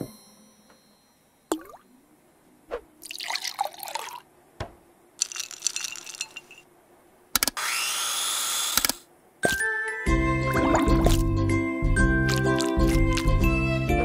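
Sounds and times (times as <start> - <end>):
glassy watery clinking: 1.5 - 2.0.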